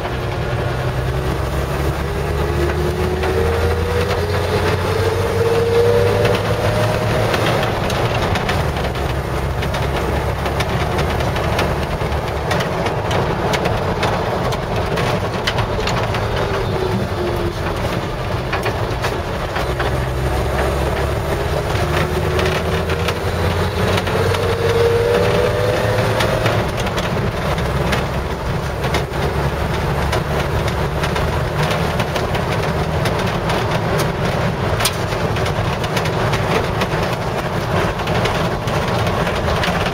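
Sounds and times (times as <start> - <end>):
engine drone inside cab: 0.0 - 39.9.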